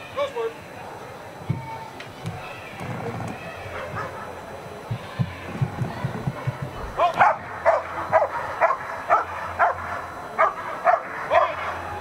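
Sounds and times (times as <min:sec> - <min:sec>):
dog barking: 0:03.8 - 0:04.4, 0:07.2 - 0:11.8.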